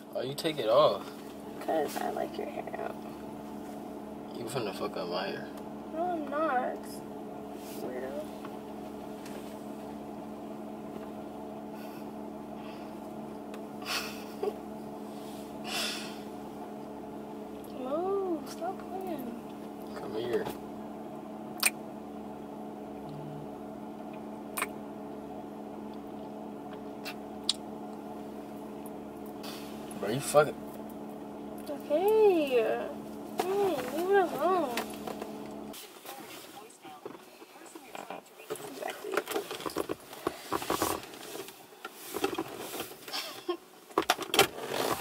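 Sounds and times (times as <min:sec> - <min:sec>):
car interior hum: 0:00.0 - 0:45.0
lip-smacking kisses: 0:21.6 - 0:21.8, 0:24.6 - 0:24.8, 0:27.0 - 0:27.6.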